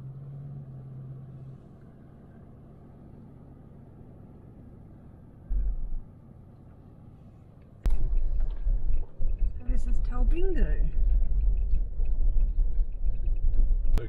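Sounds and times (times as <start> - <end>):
low rumble of engine and tyres: 0.0 - 14.0
short louder low rumble: 5.5 - 6.2, 7.8 - 14.0.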